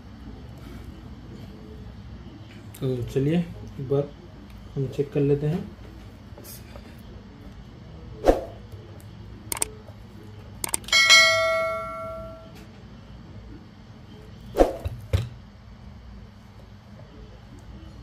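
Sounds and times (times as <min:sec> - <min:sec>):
mouse clicks: 0:09.5 - 0:09.7, 0:10.6 - 0:10.8
bell ding: 0:10.9 - 0:12.6.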